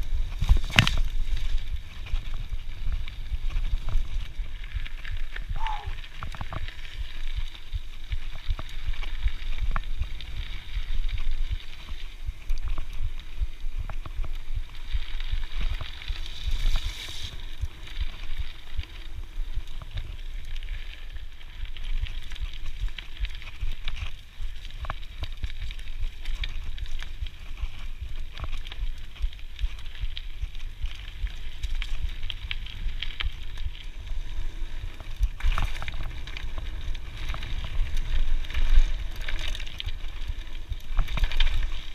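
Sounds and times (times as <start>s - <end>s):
bike clicks and rattles: 0.0s - 41.9s
bike tyres on dirt: 0.0s - 41.9s.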